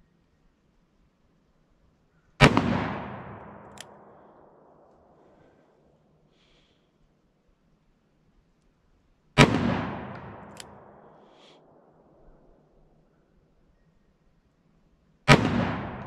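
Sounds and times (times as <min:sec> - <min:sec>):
revolver gunshot with echo: 0:02.4 - 0:04.1, 0:09.4 - 0:11.2, 0:15.3 - 0:16.0.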